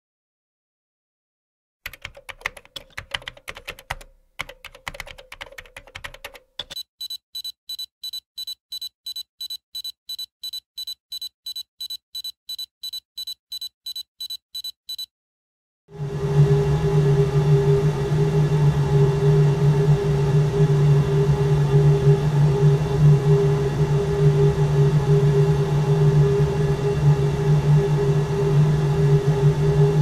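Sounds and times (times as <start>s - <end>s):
short electronic beeps: 6.7s - 15.1s
loud low drone: 15.9s - 30.0s.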